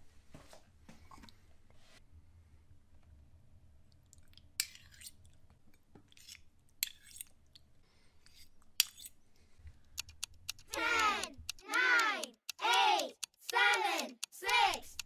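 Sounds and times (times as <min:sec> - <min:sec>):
cutlery scraping on ceramic plate: 0:08.3 - 0:09.1.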